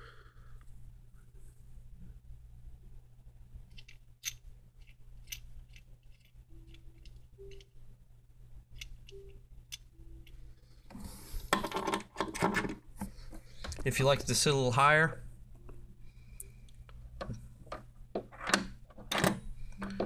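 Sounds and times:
low hum: 0.0s - 11.6s
small metallic clicks: 3.7s - 7.8s, 8.7s - 10.4s.

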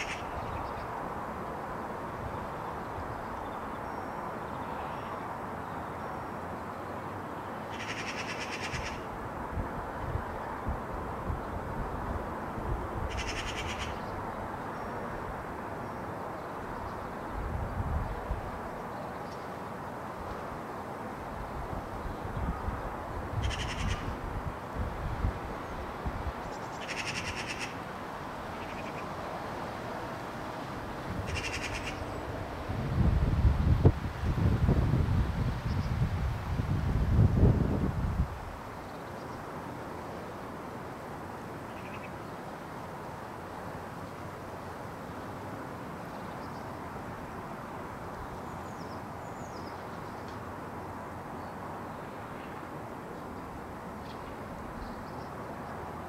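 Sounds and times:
songbird trilling: 0.0s - 0.9s, 7.7s - 9.1s, 13.1s - 14.1s, 23.4s - 24.2s, 26.5s - 27.8s, 28.6s - 29.1s, 31.2s - 32.2s
outdoor background hiss: 0.0s - 56.0s.

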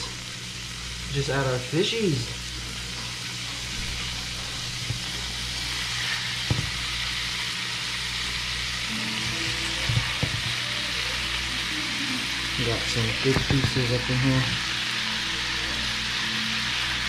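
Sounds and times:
food sizzling in frying pan: 0.0s - 17.0s
knocks in pan: 6.4s - 6.8s, 9.9s - 10.5s, 13.3s - 13.9s.

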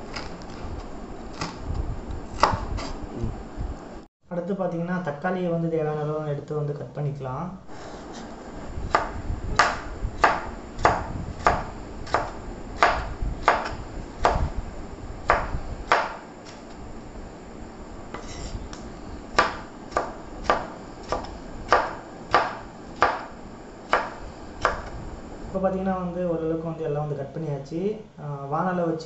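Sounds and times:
knife chopping on wooden board: 2.4s - 3.0s, 8.9s - 14.4s, 15.3s - 16.6s, 19.4s - 23.3s, 23.9s - 24.9s.

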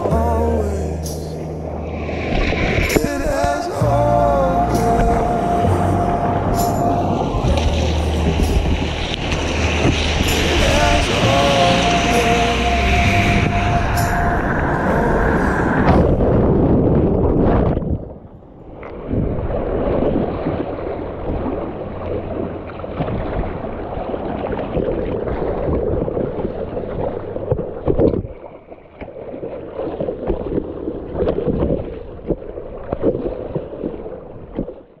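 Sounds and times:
wind rumble on microphone: 0.0s - 28.5s
water rushing and splashing: 0.0s - 35.0s
paddle splashing in water: 1.6s - 3.8s, 4.7s - 17.9s, 18.6s - 35.0s.

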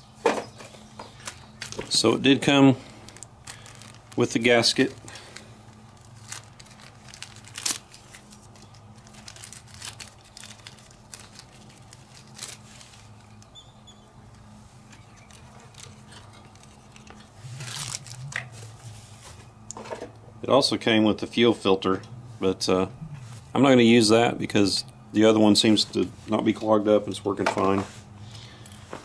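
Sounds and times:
steady low hum: 0.0s - 29.0s
plastic bag rustling: 1.2s - 13.6s, 14.2s - 19.6s.

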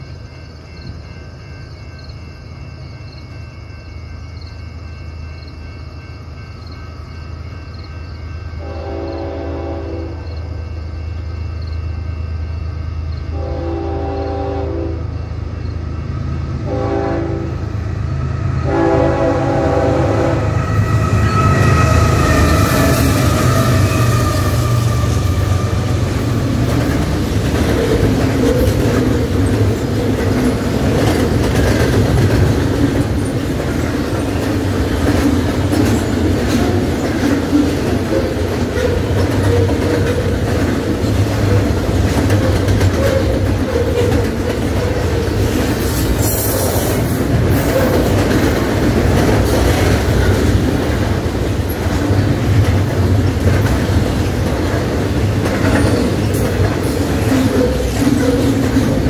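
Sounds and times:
rumble of wheels on rail: 0.0s - 59.0s
wheels clickety-clack over rail joints: 19.0s - 59.0s.

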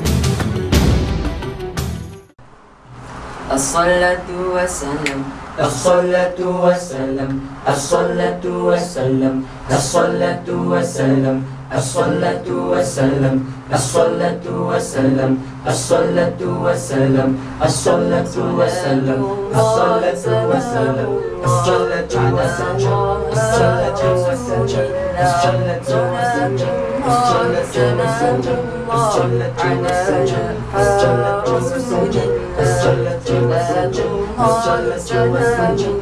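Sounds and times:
male vocal group singing harmony: 3.5s - 36.0s
steady beat: 19.6s - 36.0s.

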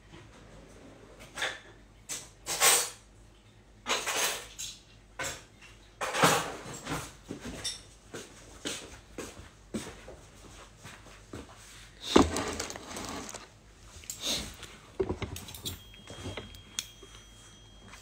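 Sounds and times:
rustling and clattering of handling: 5.7s - 18.0s.

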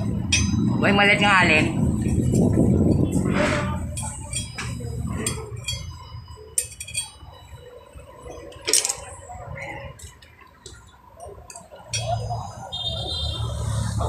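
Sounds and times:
metallic clinks of tools: 3.9s - 7.5s, 11.2s - 12.4s.

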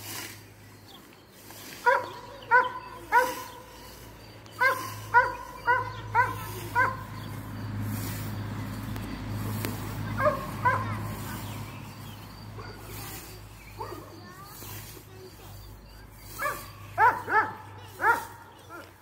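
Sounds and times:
dog barking: 1.8s - 3.7s, 4.6s - 7.2s, 10.2s - 11.0s, 13.8s - 14.1s, 16.4s - 18.9s.

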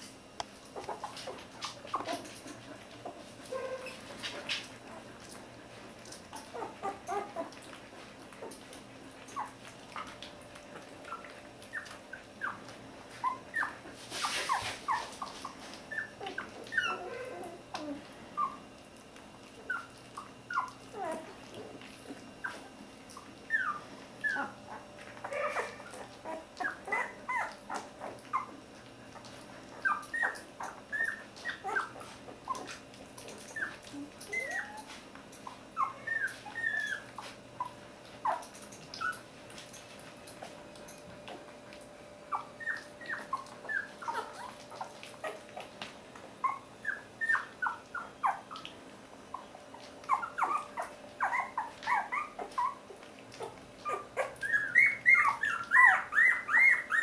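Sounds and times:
puppies squeaking and whimpering: 0.8s - 5.2s, 6.1s - 10.4s, 11.0s - 18.7s, 19.6s - 41.6s, 42.2s - 45.8s, 46.4s - 57.0s.

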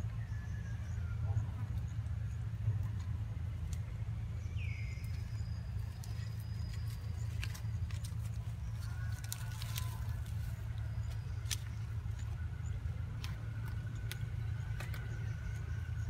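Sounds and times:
steady low rumble: 0.0s - 16.0s
small clicks and rustles: 5.9s - 12.4s.

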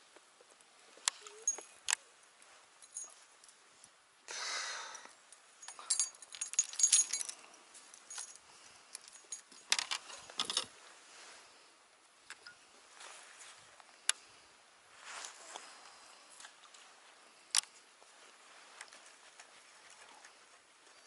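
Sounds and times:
fishing tackle clicking and rattling: 5.6s - 7.4s, 8.1s - 10.7s.

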